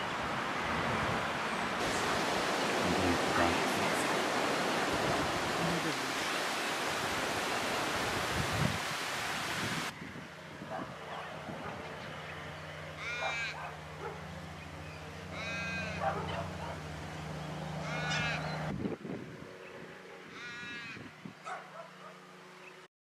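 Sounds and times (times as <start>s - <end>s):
rushing creek water: 0.0s - 10.0s
harsh cockatoo calls: 13.0s - 13.7s, 15.3s - 16.5s, 17.8s - 18.6s, 20.3s - 21.0s.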